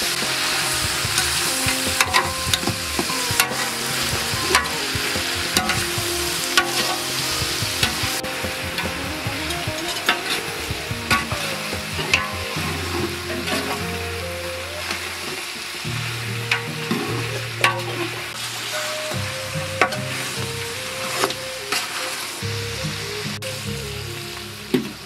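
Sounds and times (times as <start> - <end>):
meat sizzling in a pot: 0.0 - 22.4.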